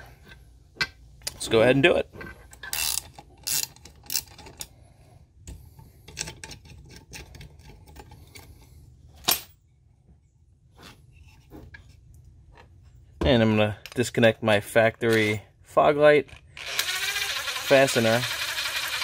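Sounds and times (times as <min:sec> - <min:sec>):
ratchet wrench clicking: 0:02.6 - 0:04.7, 0:16.6 - 0:19.0.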